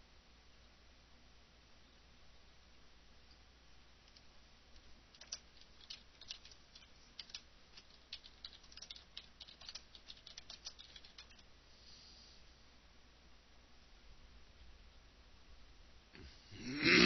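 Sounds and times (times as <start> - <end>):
typing on computer keyboard: 5.1 - 11.5.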